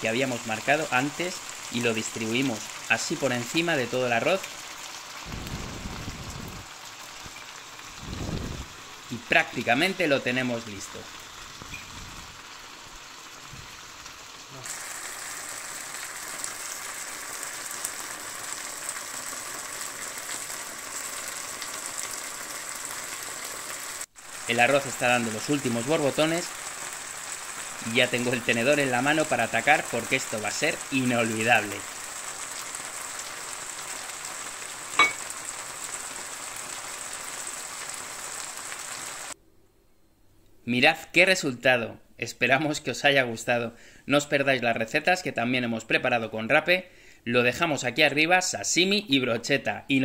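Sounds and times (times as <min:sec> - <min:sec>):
rice simmering with crackling sizzle: 0:00.0 - 0:39.4.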